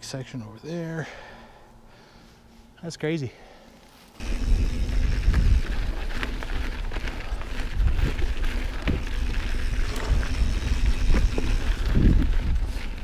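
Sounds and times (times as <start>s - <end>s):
bike tyres crackling over gravel: 4.0s - 13.0s
small ticks and rattles: 4.1s - 13.0s
wind rumble on microphone: 4.2s - 13.0s.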